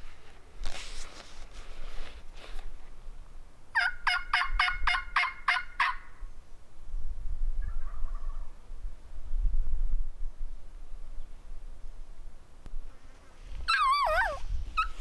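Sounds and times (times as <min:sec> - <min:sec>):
brief rustling: 0:00.0 - 0:02.9
turkey gobbling: 0:03.8 - 0:06.1, 0:07.6 - 0:08.6, 0:13.7 - 0:15.0.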